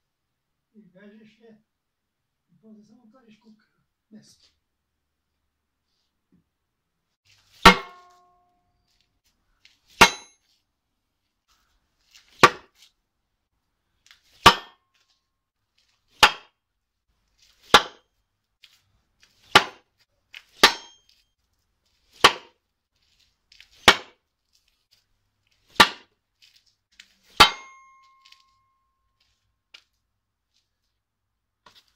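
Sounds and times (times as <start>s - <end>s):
throwing star striking wooden board: 7.6s - 8.4s, 19.4s - 19.9s, 25.7s - 26.1s, 27.3s - 28.4s.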